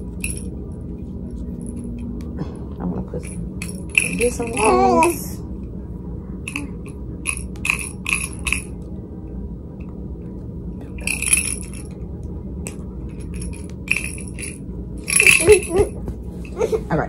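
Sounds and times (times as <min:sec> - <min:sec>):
ceiling fan hum: 0:00.0 - 0:17.0
light metallic jingling: 0:03.2 - 0:05.4, 0:11.0 - 0:12.0, 0:12.7 - 0:16.0.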